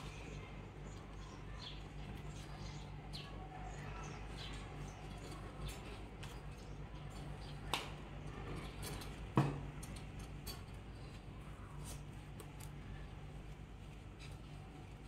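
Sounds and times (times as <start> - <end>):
rope rustling: 10.1 - 15.0.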